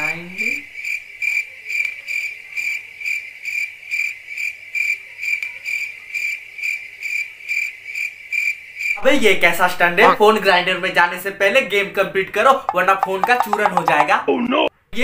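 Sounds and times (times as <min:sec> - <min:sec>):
cricket chirping: 0:00.0 - 0:10.2.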